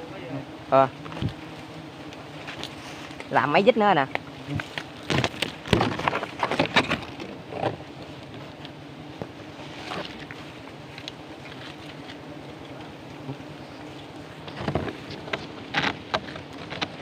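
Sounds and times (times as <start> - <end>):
honeybees buzzing: 0.0 - 17.0
knife cutting comb and branches: 14.0 - 17.0.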